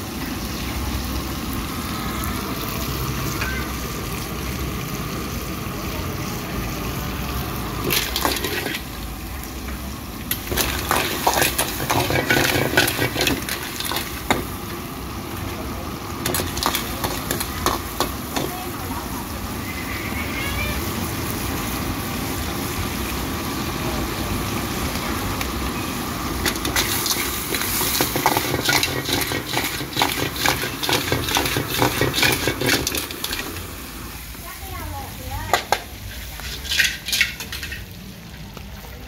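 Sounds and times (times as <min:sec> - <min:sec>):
gas burner rumble: 0:00.0 - 0:39.0
snails sizzling in wok: 0:00.0 - 0:39.0
metal ladle scraping wok: 0:07.8 - 0:08.9, 0:10.4 - 0:14.4, 0:26.4 - 0:33.6, 0:35.5 - 0:38.0
shells clattering against pan: 0:26.4 - 0:33.4, 0:35.5 - 0:37.9.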